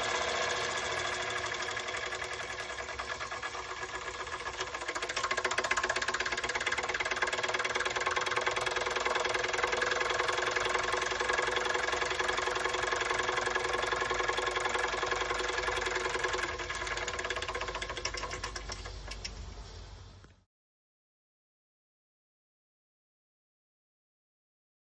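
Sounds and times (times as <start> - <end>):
toy steam engine chuffing: 0.0 - 19.6.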